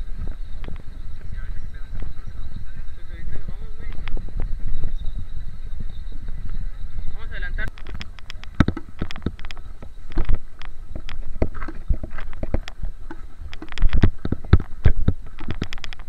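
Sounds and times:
sharp knocks and clicks: 7.7s - 16.0s.

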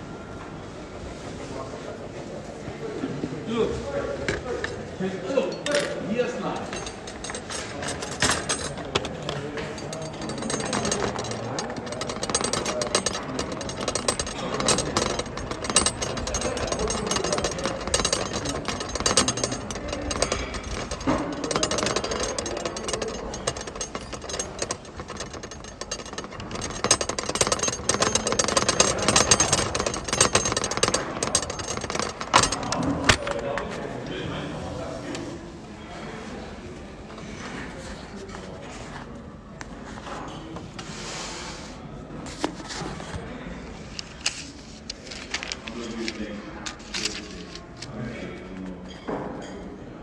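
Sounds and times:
cutlery and dishes rattling on tray: 4.2s - 33.8s, 43.9s - 49.6s.

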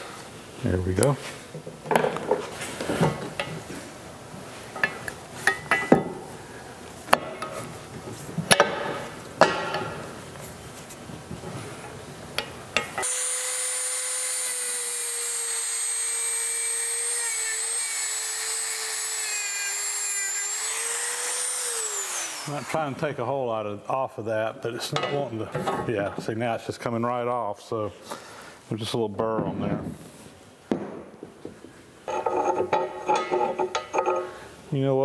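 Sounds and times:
handheld grinder whining: 13.0s - 23.0s.

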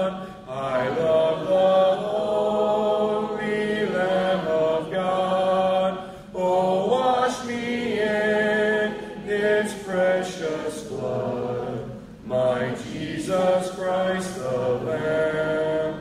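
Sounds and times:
congregation singing a hymn: 0.0s - 16.0s.

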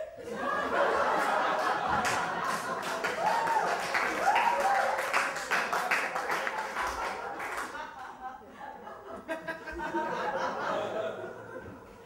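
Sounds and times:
audience laughing: 0.0s - 4.2s, 5.6s - 12.0s
audience clapping: 0.8s - 8.1s.

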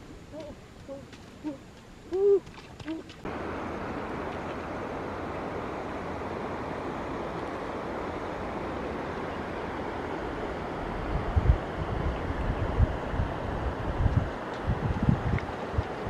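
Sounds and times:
river water rushing: 2.7s - 16.0s
wind buffeting microphone: 10.4s - 16.0s.

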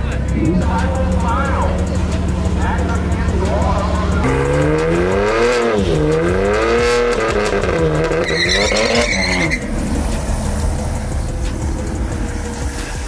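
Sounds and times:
car engine revving: 0.0s - 13.0s
tyre squeal: 8.0s - 9.8s.

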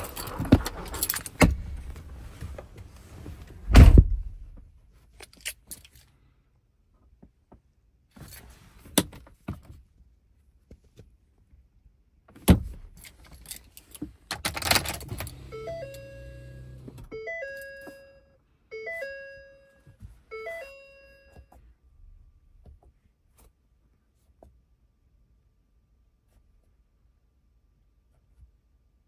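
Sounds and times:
keys rattling: 0.0s - 1.4s
heavy thump: 3.7s - 4.4s
two-note dashboard chime: 15.5s - 21.6s.

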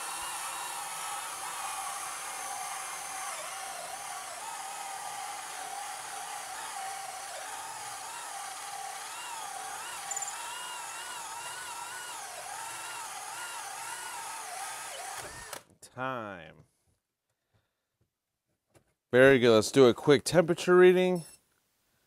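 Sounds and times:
drill motor whine: 0.0s - 15.6s.

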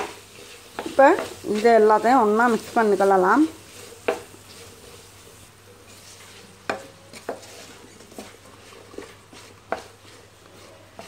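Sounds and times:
prawns sizzling in oil: 0.0s - 11.0s
wooden spoon stirring: 0.0s - 11.0s
spoon knocking on pan: 4.0s - 4.3s, 6.6s - 7.5s.

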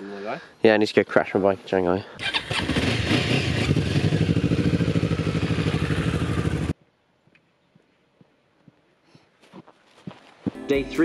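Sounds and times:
motorcycle engines pulling away: 2.2s - 6.8s.

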